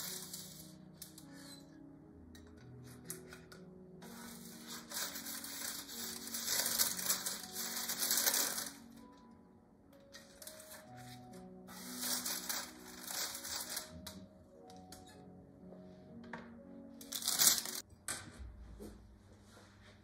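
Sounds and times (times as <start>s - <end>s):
parchment paper crinkling: 0.0s - 1.4s, 3.1s - 9.1s, 10.2s - 14.2s, 17.0s - 17.8s
soft background music: 0.0s - 20.0s.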